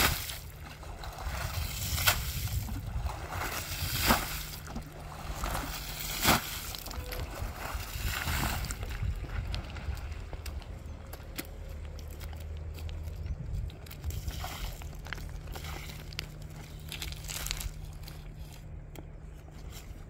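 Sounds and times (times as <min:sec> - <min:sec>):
carpet splashing in water: 0:00.0 - 0:09.8
water sloshing: 0:00.0 - 0:18.8
low rumble: 0:00.0 - 0:20.0.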